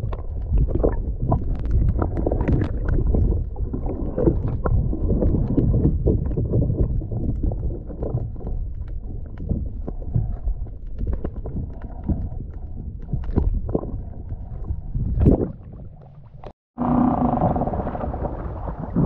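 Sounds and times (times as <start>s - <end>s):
underwater clicks and knocks: 0.0s - 16.6s
muffled underwater rumble: 0.0s - 19.0s
water noise: 0.0s - 19.0s
wind: 14.6s - 19.0s.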